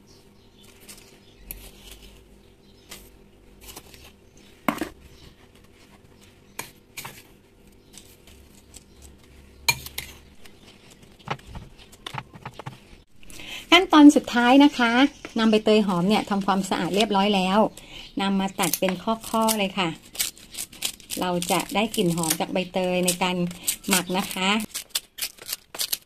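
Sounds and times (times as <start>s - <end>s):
salt crunching and rustling: 0.5s - 13.4s, 18.4s - 26.0s.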